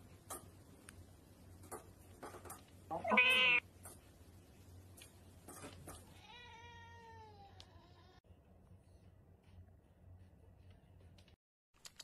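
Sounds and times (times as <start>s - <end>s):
small pet crying: 2.9s - 3.6s.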